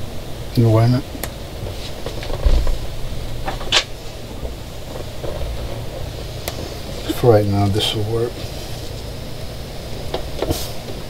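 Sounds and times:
wires clicking and rustling: 0:01.1 - 0:09.2
low rumble: 0:02.1 - 0:10.2
dull thump: 0:02.4 - 0:02.9.

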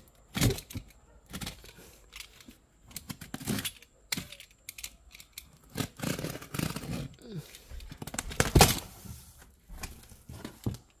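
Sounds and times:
utility knife slitting packing tape: 0:03.1 - 0:07.2.

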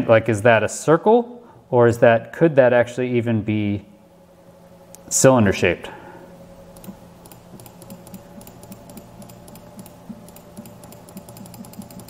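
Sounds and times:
faint electrical hum: 0:00.0 - 0:12.0
keyboard keys clicking: 0:06.8 - 0:12.0.

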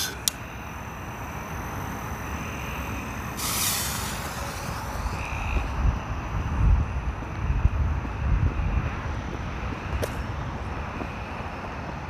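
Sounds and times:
firework fuse hissing: 0:00.0 - 0:05.9.

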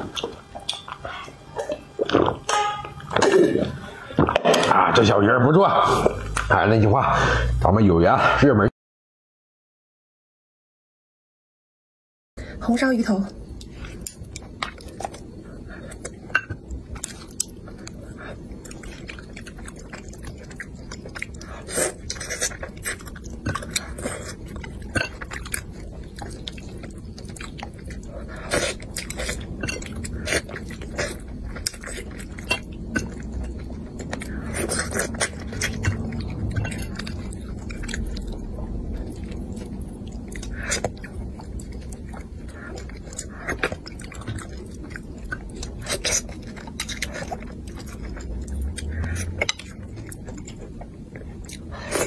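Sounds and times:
person chewing and biting: 0:16.9 - 0:52.0.

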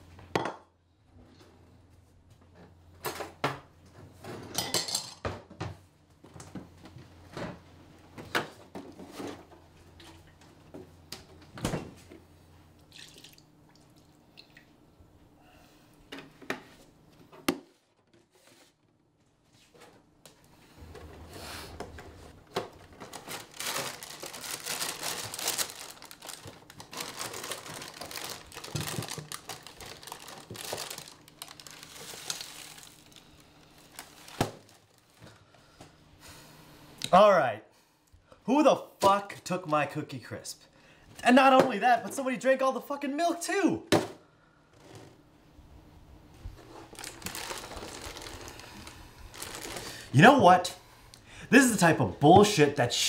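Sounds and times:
dishes clinking on a counter: 0:04.5 - 0:05.4
milk pouring into a bowl: 0:12.9 - 0:14.7
plastic bag crinkling: 0:22.7 - 0:35.3, 0:46.6 - 0:50.2.

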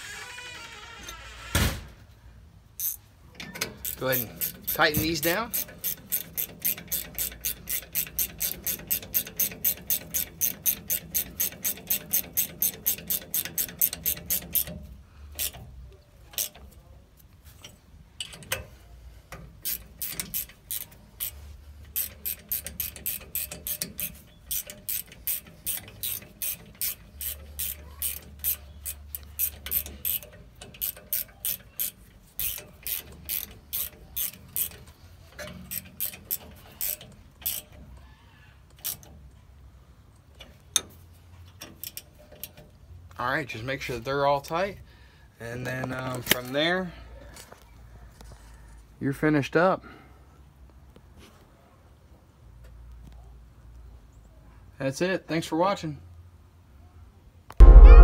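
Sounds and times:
ratchet wrench clicking: 0:02.8 - 0:15.7, 0:16.3 - 0:16.8, 0:19.5 - 0:38.0, 0:38.7 - 0:39.1, 0:41.5 - 0:42.6.

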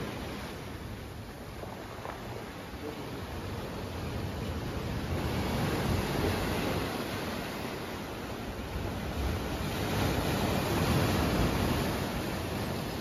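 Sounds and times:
sea waves breaking on rocks: 0:00.0 - 0:13.0.

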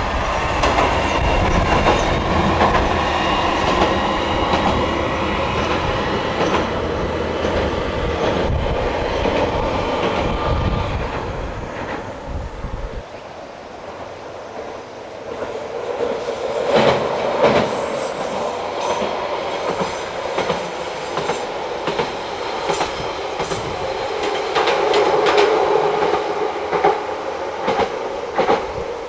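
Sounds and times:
wheels clacking over rail joints: 0:00.6 - 0:08.6, 0:15.3 - 0:28.8.

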